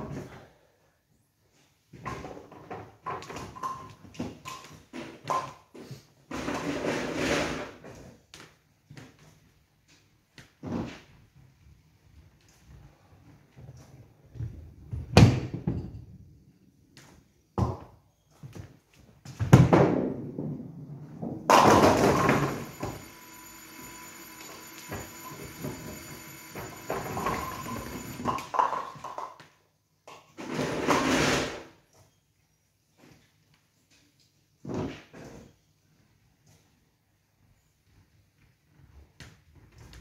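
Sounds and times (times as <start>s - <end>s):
bowling pins crashing: 19.5s - 28.8s
bowling ball rolling down lane: 19.7s - 29.3s
pinsetter machinery whirring: 21.6s - 28.4s.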